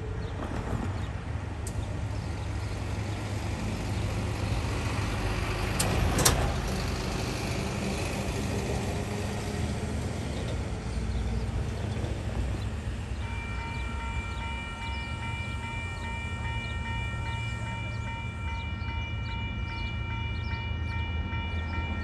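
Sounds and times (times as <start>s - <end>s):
traffic rumble: 0.0s - 21.8s
diesel freight train approaching: 0.0s - 22.0s
diesel truck passing: 1.8s - 13.2s.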